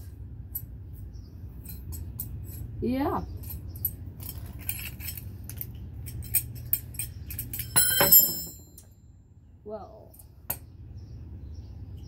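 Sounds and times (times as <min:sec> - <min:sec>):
metal tools clinking: 0:03.4 - 0:08.9
ringing metallic clatter: 0:06.1 - 0:08.9.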